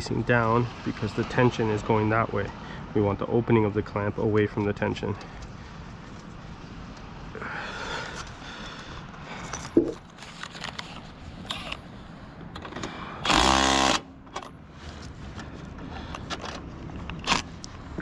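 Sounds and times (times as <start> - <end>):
impact driver burst: 13.2 - 14.1.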